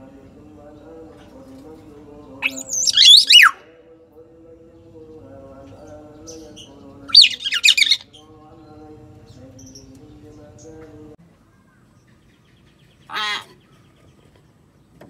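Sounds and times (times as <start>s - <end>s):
myna whistled call: 2.4s - 3.6s, 7.1s - 8.0s.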